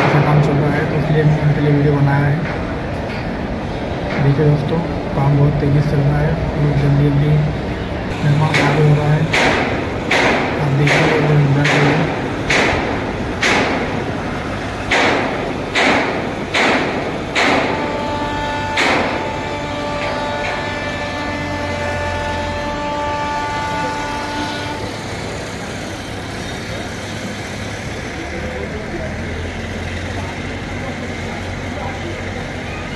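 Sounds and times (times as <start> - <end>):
low machinery rumble: 0.0 - 32.9
steel clanging on steel: 8.1 - 25.7.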